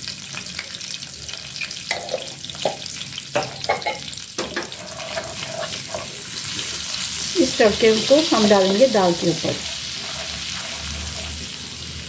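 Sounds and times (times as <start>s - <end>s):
butter and oil sizzling in pan: 0.0s - 12.0s
wooden spatula scraping pan: 4.6s - 7.2s, 7.8s - 11.7s.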